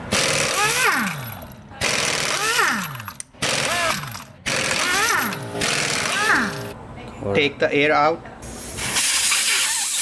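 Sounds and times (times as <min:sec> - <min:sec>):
impact wrench hammering: 0:00.0 - 0:06.7.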